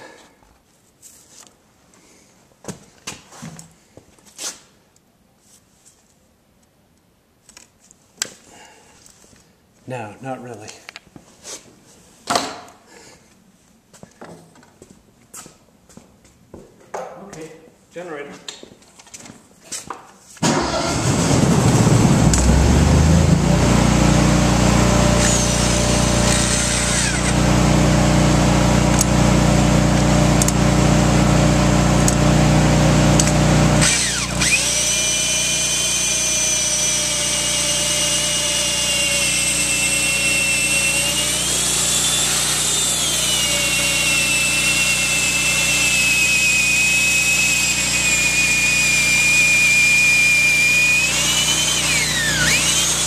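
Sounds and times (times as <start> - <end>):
petrol generator humming: 20.4 - 53.0
electric drill whining: 24.7 - 29.2, 33.1 - 53.0.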